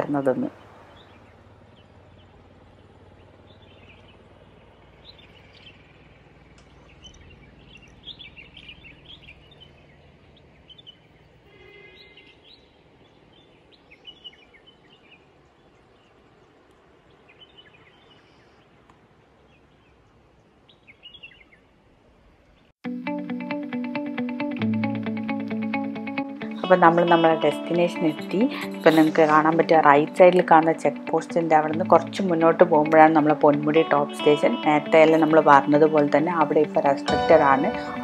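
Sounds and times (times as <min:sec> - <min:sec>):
bird chirps and calls: 0:00.0 - 0:18.7, 0:20.7 - 0:21.7
faint low background noise: 0:12.2 - 0:22.8.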